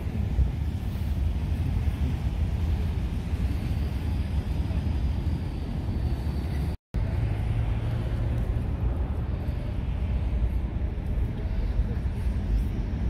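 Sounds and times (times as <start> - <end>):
low city street rumble: 0.0 - 13.0.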